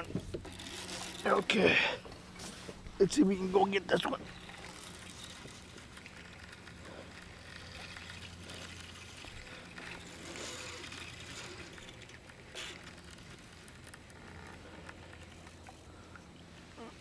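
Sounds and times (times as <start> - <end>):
water hissing against hull: 4.2 - 17.0.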